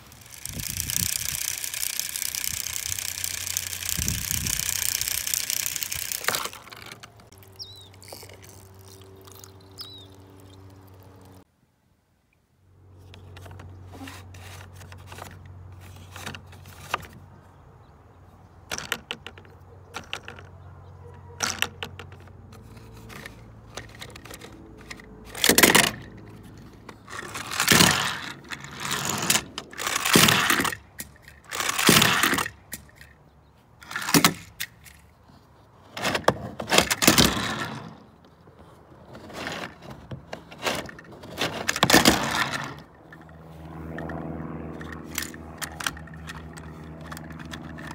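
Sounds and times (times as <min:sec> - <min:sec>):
plastic toy rattling and clattering: 0:00.0 - 0:09.6, 0:13.2 - 0:17.2, 0:18.6 - 0:20.6, 0:21.4 - 0:33.2, 0:33.8 - 0:35.2, 0:35.9 - 0:38.0, 0:39.1 - 0:43.4, 0:44.8 - 0:47.9
toy car clicking on plastic: 0:00.0 - 0:11.4, 0:18.6 - 0:20.6, 0:21.2 - 0:33.2, 0:33.8 - 0:35.1, 0:36.0 - 0:38.1, 0:39.1 - 0:44.2, 0:44.8 - 0:47.9.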